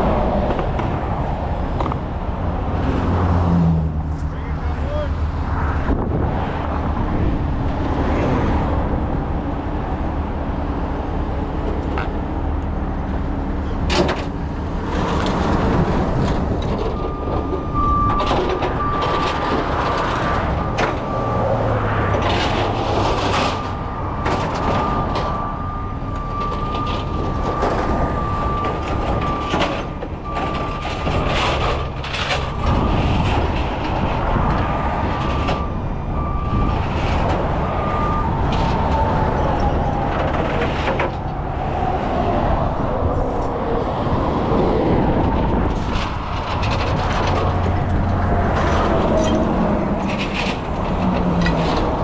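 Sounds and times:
metal clanks and knocks: 0:45.2 - 0:52.0.

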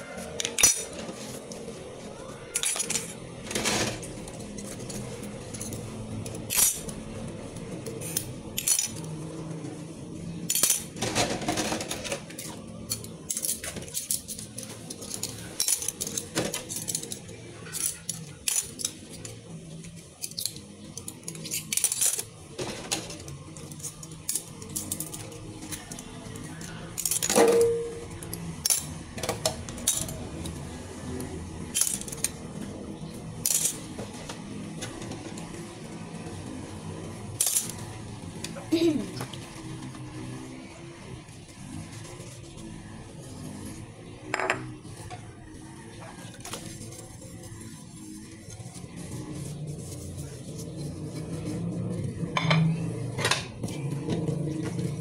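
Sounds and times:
cutlery clinking in a metal sink: 0:00.4 - 0:01.6, 0:02.5 - 0:07.1, 0:07.8 - 0:09.2, 0:10.4 - 0:30.6, 0:31.7 - 0:32.6, 0:33.4 - 0:35.6, 0:52.2 - 0:55.0.

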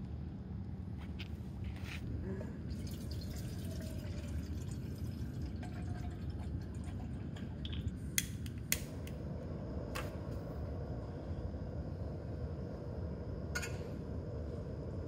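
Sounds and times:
water dripping: 0:02.8 - 0:08.0.

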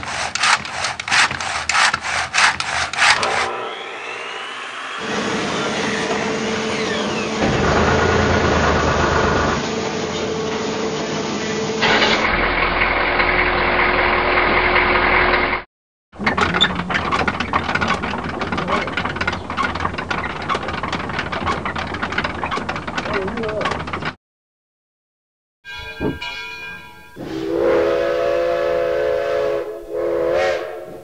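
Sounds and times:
sharp clicks and knocks: 0:00.0 - 0:03.5, 0:16.2 - 0:24.2
machine engines running: 0:00.0 - 0:15.6, 0:16.2 - 0:24.2.

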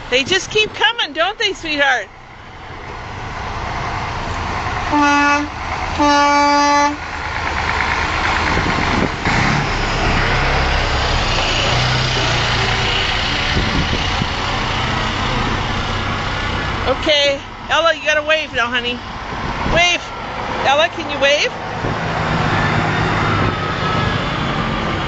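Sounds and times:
truck engine and tyres rumbling: 0:00.0 - 0:25.0
truck horn blasts: 0:04.9 - 0:07.0.

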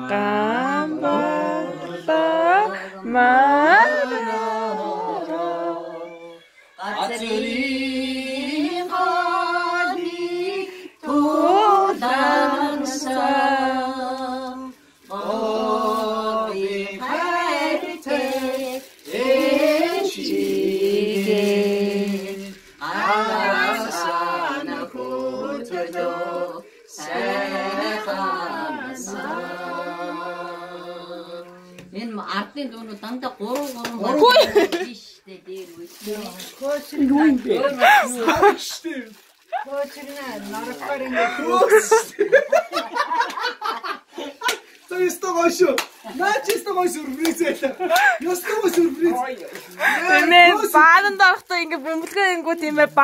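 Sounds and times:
person singing unaccompanied: 0:00.0 - 0:31.8.

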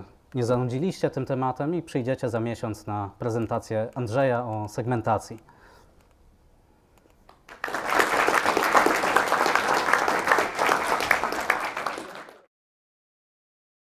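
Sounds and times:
audience applauding: 0:07.4 - 0:12.5.

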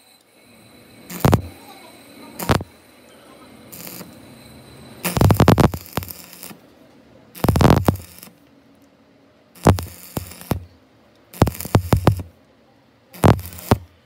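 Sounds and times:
welding arc crackling: 0:01.0 - 0:03.0, 0:03.6 - 0:04.3, 0:05.0 - 0:06.6, 0:07.4 - 0:08.5, 0:09.6 - 0:12.4, 0:13.1 - 0:14.0.

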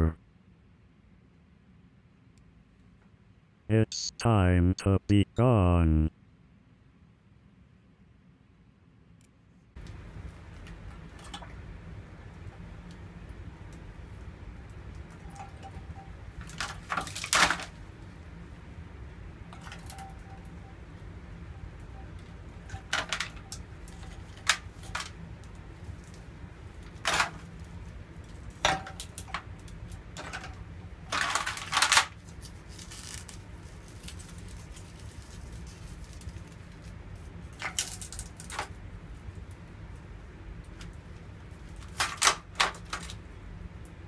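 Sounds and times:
ice blocks clinking in metal tray: 0:30.2 - 0:32.1.

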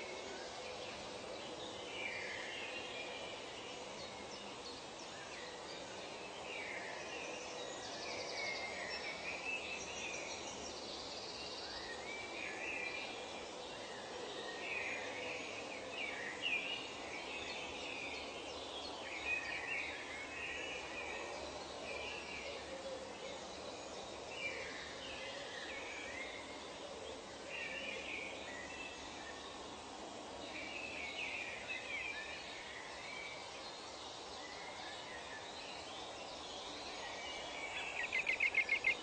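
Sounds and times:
steady background hiss: 0:00.0 - 0:39.0
birds chirping and calling: 0:37.8 - 0:39.0.

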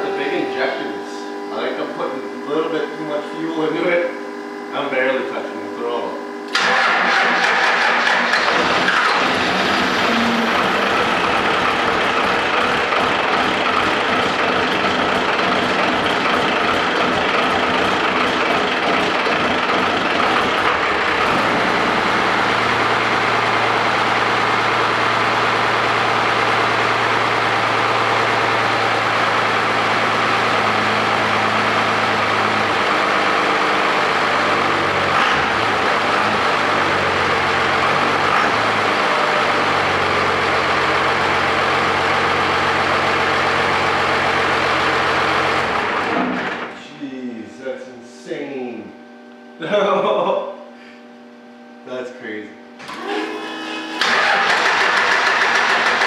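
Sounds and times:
diesel engine starting and idling: 0:06.5 - 0:46.8, 0:52.8 - 0:56.0.

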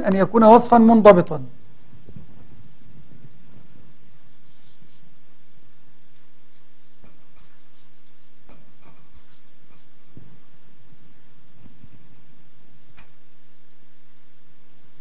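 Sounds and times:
marker pen scratching on paper: 0:04.2 - 0:10.3.

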